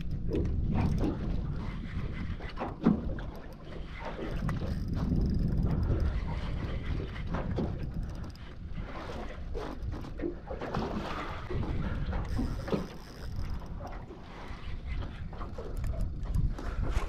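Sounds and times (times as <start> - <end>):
water slapping against boat hull: 0.0 - 17.0
wind rumbling on microphone: 0.0 - 17.0.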